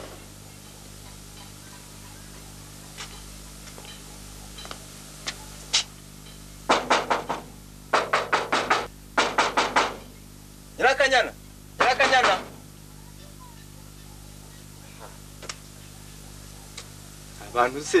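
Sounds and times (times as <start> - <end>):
knuckles knocking on door: 6.7 - 10.0.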